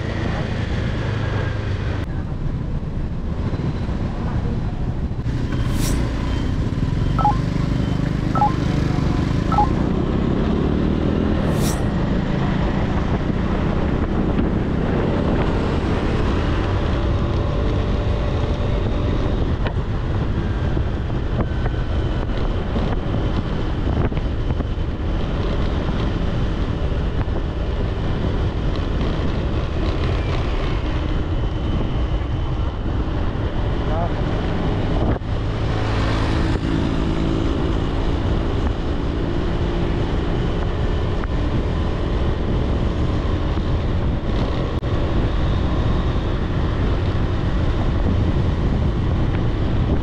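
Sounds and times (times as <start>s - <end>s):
road traffic noise: 0.0s - 50.0s
faint short beeps: 7.2s - 7.5s, 8.4s - 8.7s, 9.5s - 9.8s
wind buffeting microphone: 11.0s - 50.0s.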